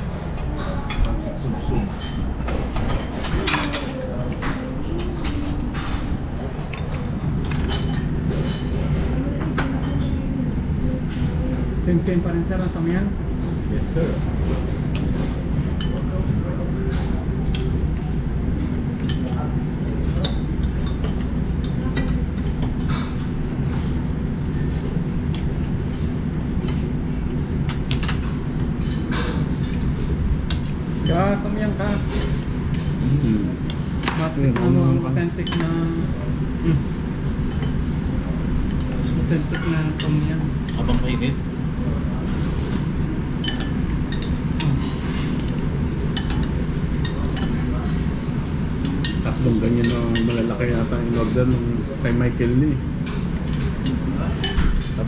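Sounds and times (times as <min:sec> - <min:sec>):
dishes and cutlery clinking: 0:01.7 - 0:10.2, 0:16.9 - 0:23.9, 0:35.4 - 0:36.2, 0:42.2 - 0:51.6.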